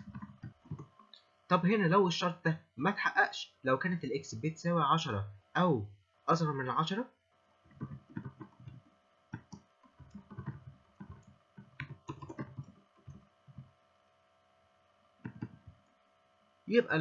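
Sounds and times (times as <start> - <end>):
keyboard typing: 0.0 - 1.1, 7.7 - 13.7, 15.2 - 16.0.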